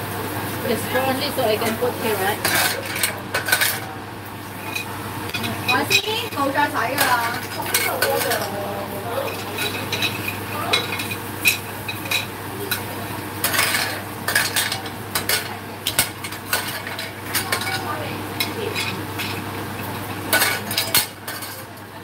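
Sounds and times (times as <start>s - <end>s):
frying sizzle: 0.0s - 22.0s
metal utensil clinking on a pan: 6.9s - 8.5s, 9.2s - 19.4s, 20.3s - 21.8s.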